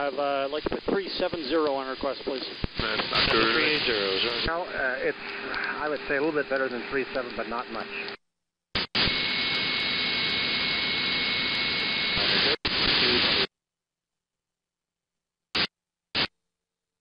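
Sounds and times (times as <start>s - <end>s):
radio static hissing: 0.0s - 8.2s, 8.8s - 13.5s, 15.6s - 16.3s
static blips: 0.0s - 8.2s, 8.8s - 13.5s, 15.6s - 16.3s.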